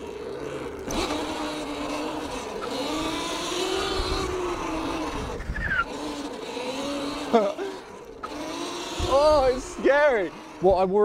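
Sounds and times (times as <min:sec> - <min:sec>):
electric motor whining: 0:00.0 - 0:11.0
rumble of tyres and wind: 0:00.0 - 0:11.0.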